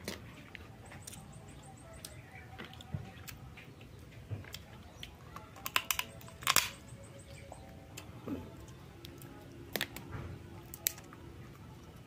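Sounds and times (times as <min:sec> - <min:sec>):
crab shell cracking: 0:05.4 - 0:06.8.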